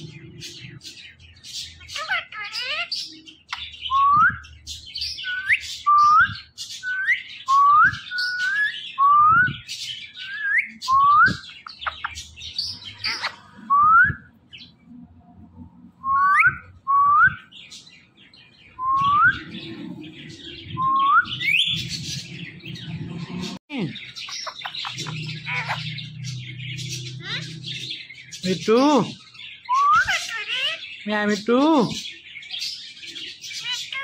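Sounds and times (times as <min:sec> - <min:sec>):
parakeets whistling: 0:00.0 - 0:14.7, 0:16.0 - 0:34.0
high scratchy bird chatter: 0:09.6 - 0:13.6, 0:17.6 - 0:34.0.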